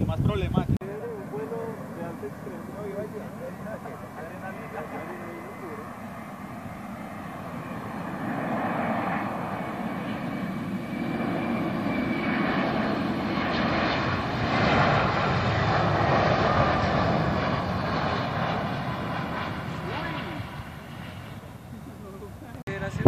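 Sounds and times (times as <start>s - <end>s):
jet engines rumbling: 0.0s - 23.0s.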